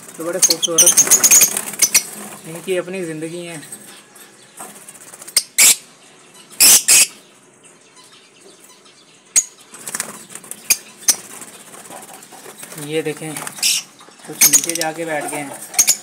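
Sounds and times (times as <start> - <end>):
birds flapping wings: 0.0 - 2.5, 9.7 - 13.7.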